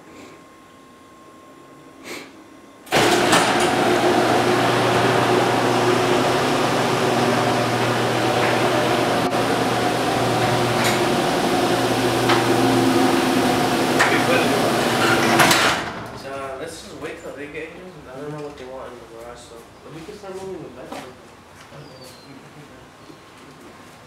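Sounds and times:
garage door opener humming: 0:02.8 - 0:16.6.

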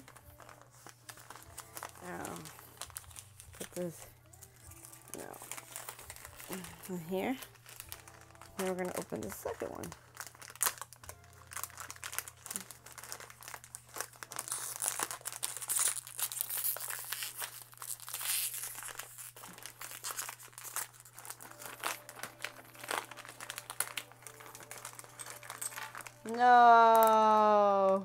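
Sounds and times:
plastic packet crinkling and tearing: 0:00.0 - 0:28.0.

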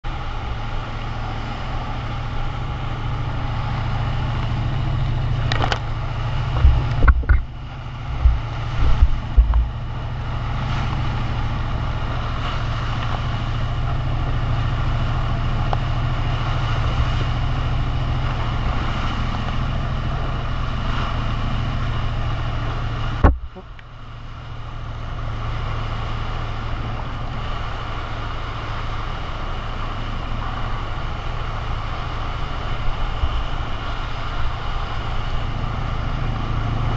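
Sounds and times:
boat engine drone: 0:00.0 - 0:36.9
rush of boat wake: 0:00.0 - 0:36.9
wind buffeting microphone: 0:02.7 - 0:23.8.

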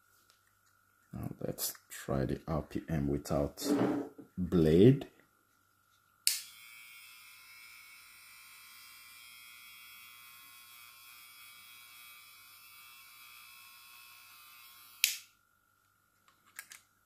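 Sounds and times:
hair clipper motor humming: 0:06.3 - 0:15.3.

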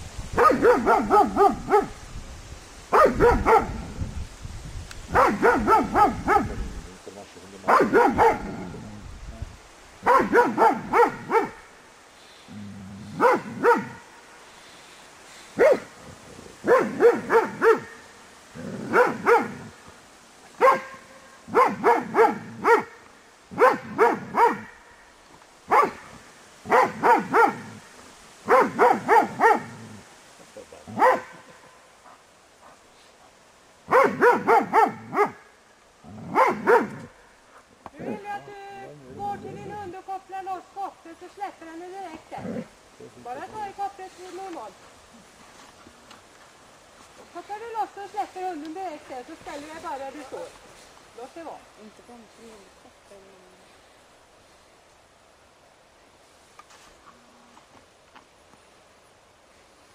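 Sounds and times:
dog barking: 0:00.4 - 0:02.0, 0:02.9 - 0:03.8, 0:05.1 - 0:06.6, 0:07.7 - 0:08.6, 0:10.0 - 0:11.6, 0:13.2 - 0:14.0, 0:15.6 - 0:15.9, 0:16.6 - 0:18.0, 0:18.8 - 0:19.7, 0:20.6 - 0:23.0, 0:23.6 - 0:24.8, 0:25.7 - 0:26.1, 0:26.7 - 0:27.8, 0:28.5 - 0:29.8, 0:31.0 - 0:31.6, 0:33.9 - 0:35.4, 0:36.3 - 0:37.1.

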